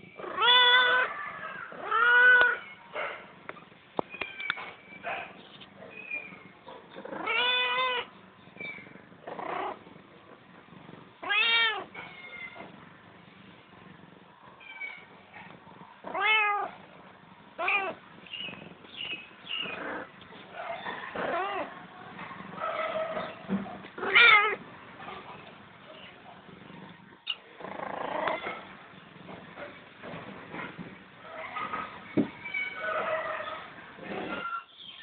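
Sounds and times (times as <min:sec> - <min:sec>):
kittens meowing: 0:00.2 - 0:02.8, 0:07.0 - 0:08.7, 0:11.2 - 0:12.7, 0:16.1 - 0:16.7, 0:24.0 - 0:24.6, 0:32.4 - 0:33.1.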